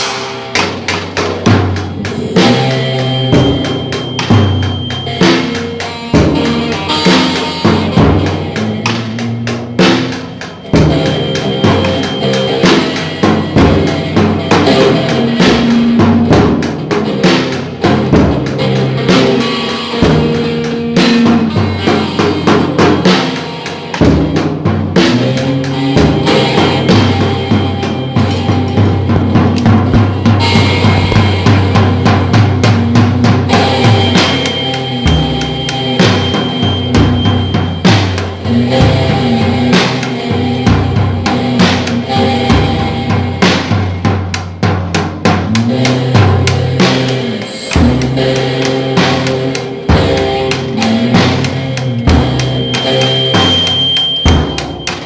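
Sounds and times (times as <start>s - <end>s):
acoustic guitar: 0.0s - 55.0s
drum kit playing steady beat: 0.0s - 55.0s.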